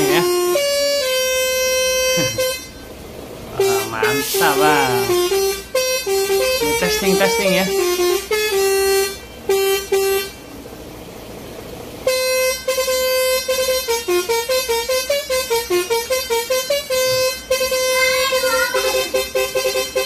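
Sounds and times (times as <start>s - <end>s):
musical air horn playing tune: 0.0s - 2.9s, 3.6s - 10.4s, 12.0s - 20.0s
steady background hiss: 0.0s - 17.6s.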